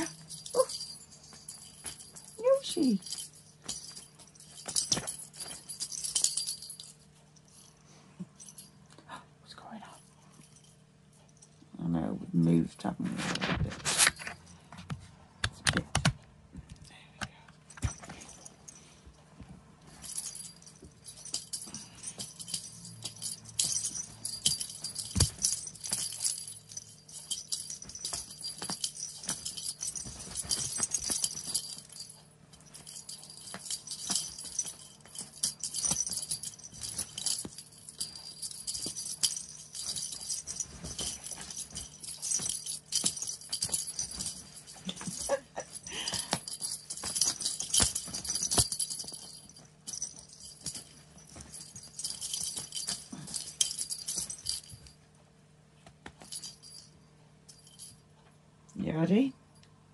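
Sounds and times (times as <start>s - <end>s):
small bells jingling: 0.0s - 8.9s, 9.6s - 11.6s, 17.7s - 55.1s, 56.2s - 58.1s.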